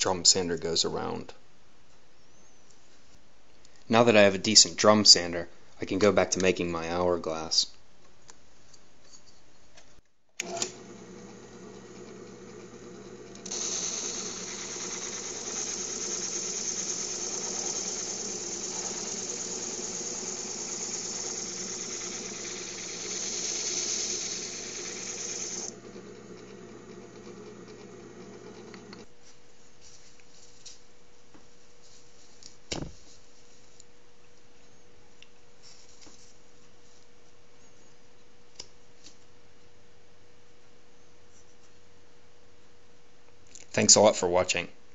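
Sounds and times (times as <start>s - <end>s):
drill press motor hum: 10.4s - 29.1s
wood sanding hiss: 13.5s - 25.7s.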